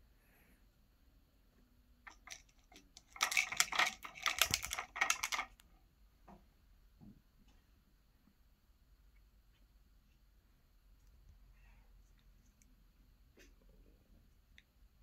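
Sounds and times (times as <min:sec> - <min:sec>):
plastic puzzle toy rattling: 0:02.1 - 0:05.6.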